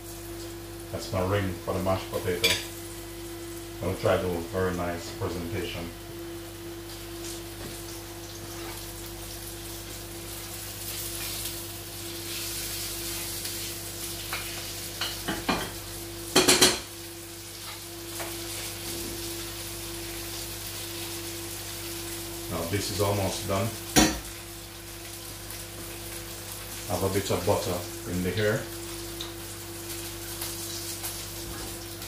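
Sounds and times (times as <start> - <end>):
steady hum: 0.0 - 8.9
fish sizzling in frying pan: 0.0 - 32.0.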